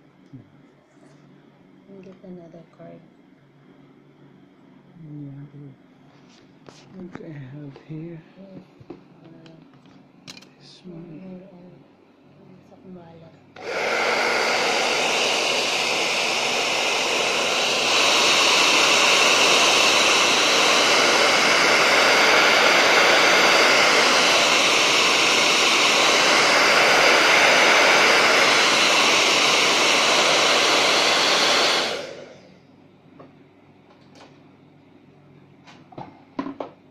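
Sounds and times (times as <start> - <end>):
hair dryer blowing: 13.6 - 32.6.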